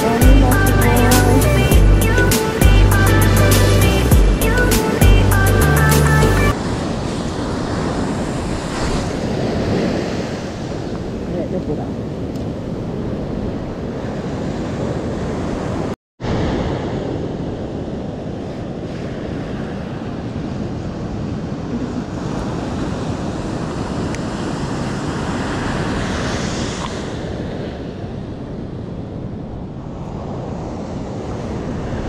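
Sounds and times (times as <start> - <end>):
surf breaking on beach: 13.3 - 28.4.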